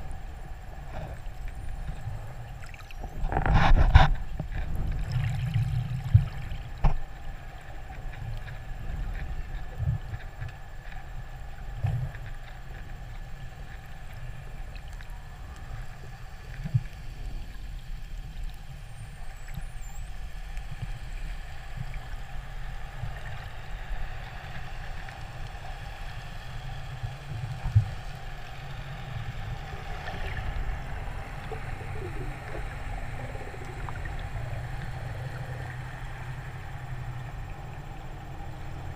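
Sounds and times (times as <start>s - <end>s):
faint steady tones: 0.0s - 3.5s, 4.1s - 38.9s
low underwater rumble: 0.0s - 38.9s.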